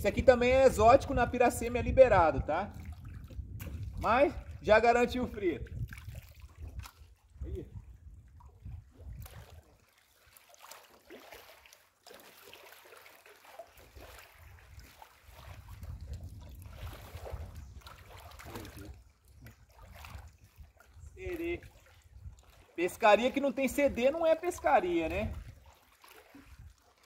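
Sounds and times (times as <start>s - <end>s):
wind rumbling on microphone: 0.0s - 9.8s, 14.0s - 22.6s, 23.7s - 25.7s, 26.5s - 26.8s
lapping river water: 0.0s - 27.0s.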